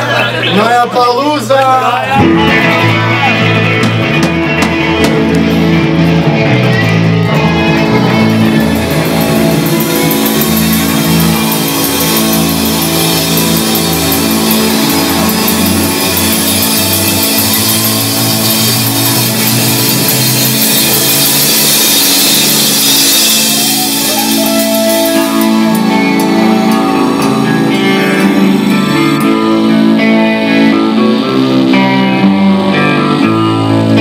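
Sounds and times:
live rock band playing: 0.0 - 34.0
cymbal strokes: 8.8 - 30.0.

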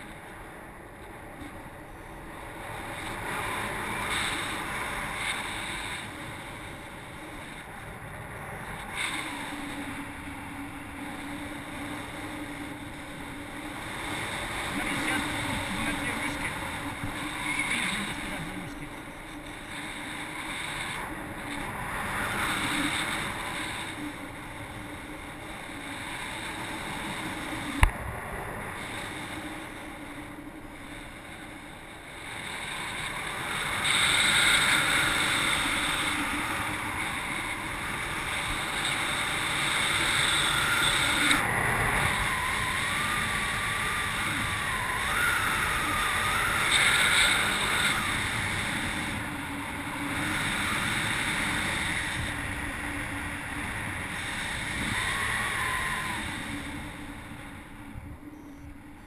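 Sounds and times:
wind rushing over microphone: 0.0 - 59.0
faint wavering tone: 8.3 - 27.9, 34.2 - 59.0.

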